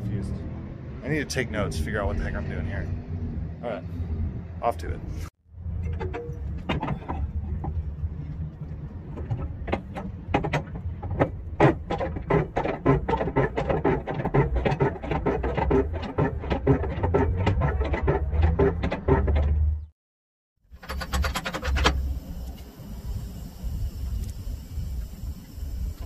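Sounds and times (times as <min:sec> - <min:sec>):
hand crank clicking and clanking: 0:05.8 - 0:07.8, 0:09.2 - 0:19.8.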